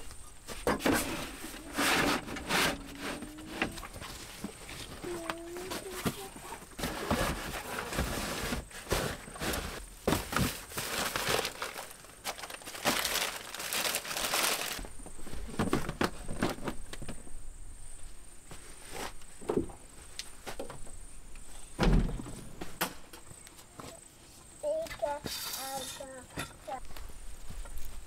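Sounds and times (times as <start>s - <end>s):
bags rustling and crinkling: 0.5s - 17.2s
thump: 21.8s - 23.0s.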